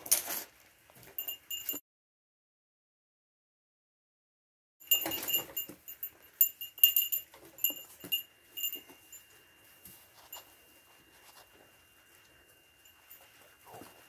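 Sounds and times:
small bell jingling: 1.0 - 1.8, 4.8 - 14.0.

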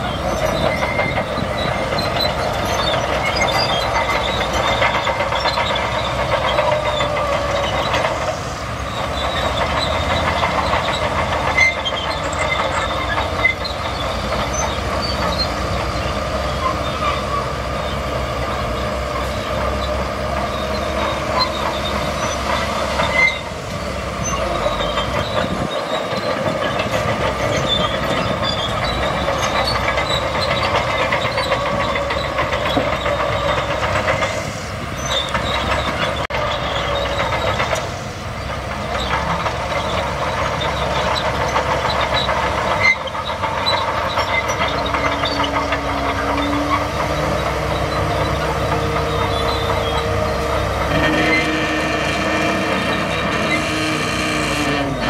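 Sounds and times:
dump trucks running: 0.0 - 55.0
high squeaks and clinks: 38.9 - 55.0.

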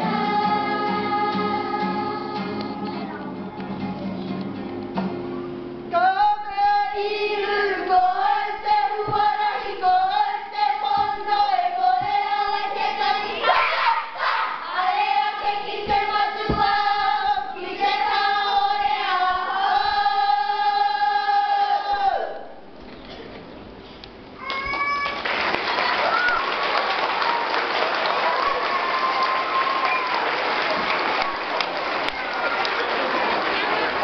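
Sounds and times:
girls singing together: 0.0 - 3.2, 5.9 - 22.8.

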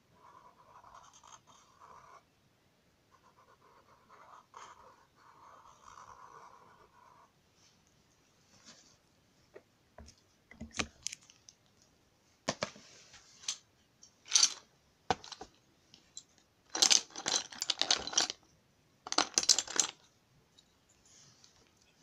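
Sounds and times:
drawing tools clattering: 13.3 - 18.4, 19.1 - 20.1.

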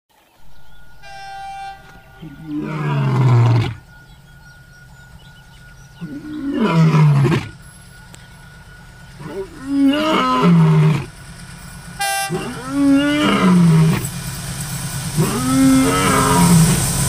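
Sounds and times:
steady low hum: 0.4 - 17.0
lion roaring: 2.2 - 3.8, 6.0 - 7.6, 9.2 - 11.2, 12.3 - 14.1, 15.2 - 16.8.

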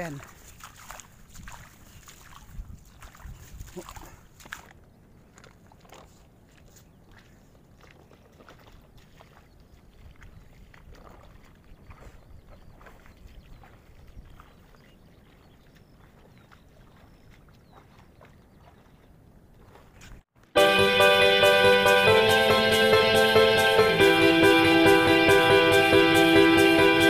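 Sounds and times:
feet splashing through water: 0.0 - 20.4.

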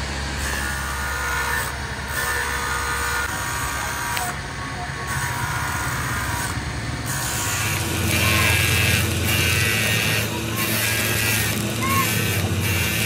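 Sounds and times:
welding arc crackling and hissing: 5.2 - 13.0.

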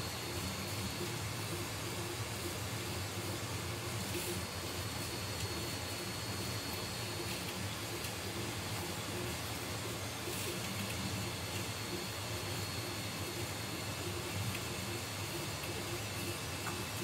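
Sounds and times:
low hum and hiss: 0.0 - 17.0.

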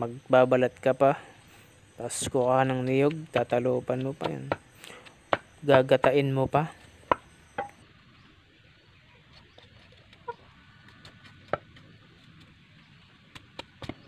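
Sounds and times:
faint animal call: 9.0 - 10.7.

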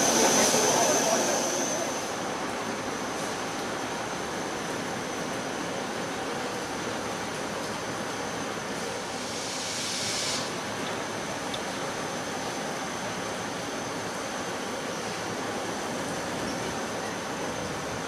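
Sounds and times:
locomotive steam hissing: 0.0 - 2.4, 8.8 - 11.4
gush of steam: 8.6 - 13.7.

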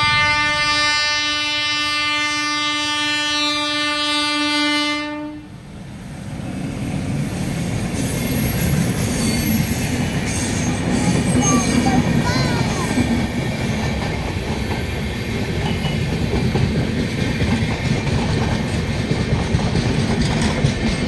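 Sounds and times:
train horn: 0.0 - 5.6
train clickety-clack passing: 0.0 - 21.0.

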